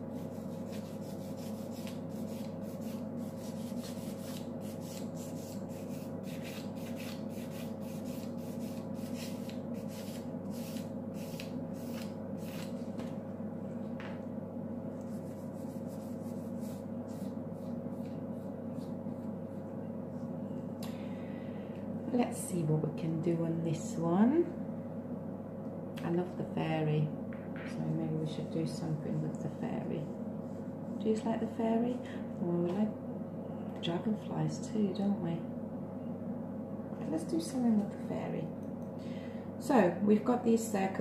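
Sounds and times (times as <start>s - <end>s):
steady low hum: 0.0s - 41.0s
nail file scratching plastic: 0.2s - 12.7s.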